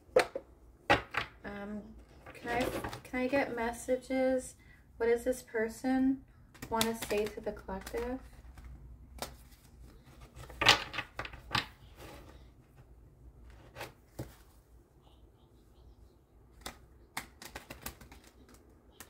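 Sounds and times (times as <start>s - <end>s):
cards being shuffled: 6.5s - 11.7s, 16.5s - 19.0s.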